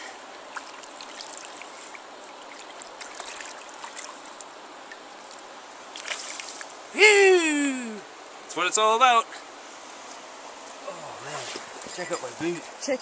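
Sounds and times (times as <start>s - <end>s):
river current rushing: 0.0s - 13.0s
small water splashes: 0.4s - 6.9s.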